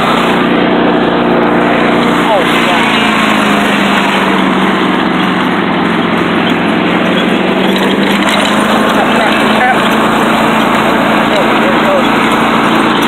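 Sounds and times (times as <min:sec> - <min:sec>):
riding lawn mower engine: 0:00.0 - 0:13.0.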